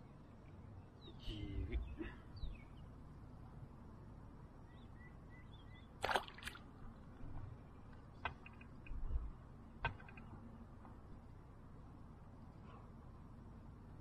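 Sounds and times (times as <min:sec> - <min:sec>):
faint bird calls: 0:01.0 - 0:02.8.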